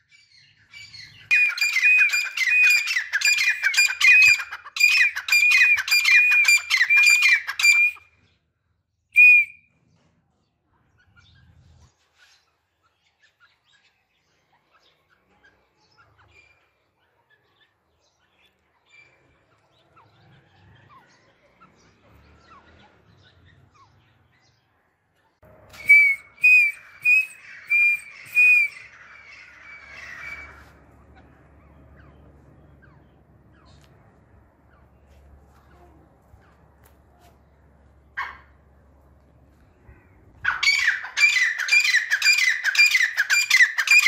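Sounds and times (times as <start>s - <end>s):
francolin whistled calls: 1.3s - 8.1s, 9.2s - 9.6s, 25.7s - 30.5s.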